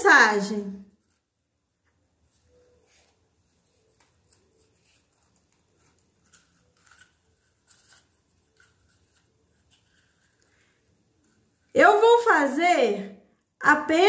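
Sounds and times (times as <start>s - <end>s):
paper and ribbon rustling: 0.8s - 12.0s.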